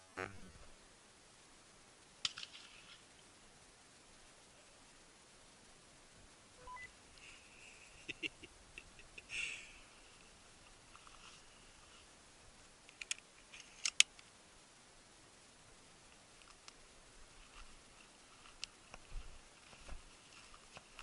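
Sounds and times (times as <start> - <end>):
short chirp-like burst: 6.6 - 6.9
faint clicks: 12.8 - 14.3, 16.1 - 16.8
sharp clicks: 12.9 - 14.3.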